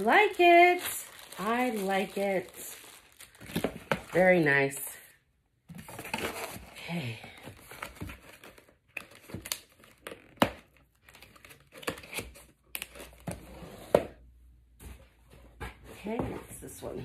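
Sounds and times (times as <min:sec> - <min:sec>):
packing paper crinkling: 0:00.0 - 0:04.3.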